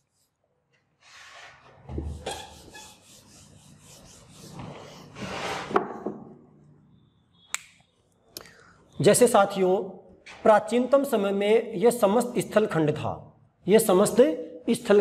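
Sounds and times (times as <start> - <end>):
duster scraping whiteboard: 1.0 - 5.9.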